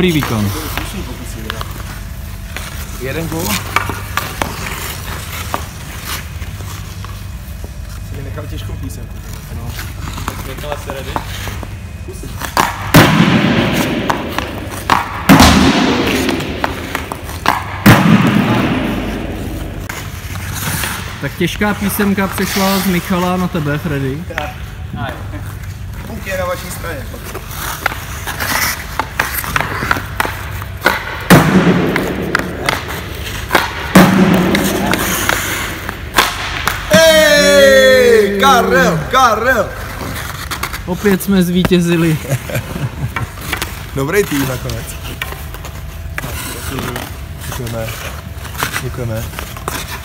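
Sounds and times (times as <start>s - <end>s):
puck thudding in arena: 12.5s - 20.1s, 29.0s - 37.6s
hockey stick clicking on puck: 14.1s - 15.5s, 16.1s - 17.8s, 27.6s - 37.0s.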